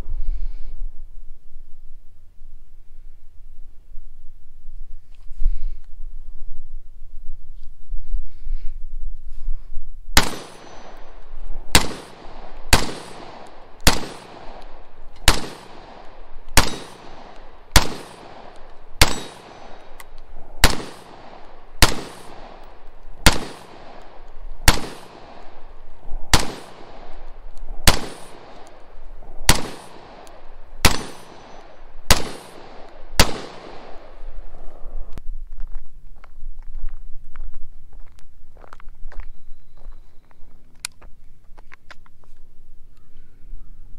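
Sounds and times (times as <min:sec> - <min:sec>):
rifle shots with echo: 0:10.2 - 0:34.6.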